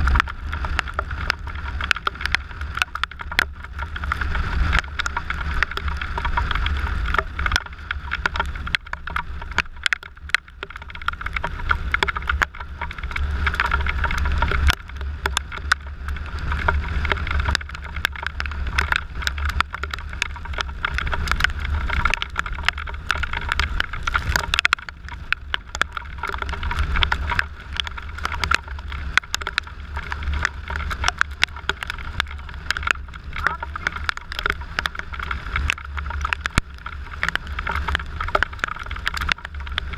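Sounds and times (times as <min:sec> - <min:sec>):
raindrops ticking on camera: 0:00.0 - 0:39.9
wind rumble on microphone: 0:00.0 - 0:39.9.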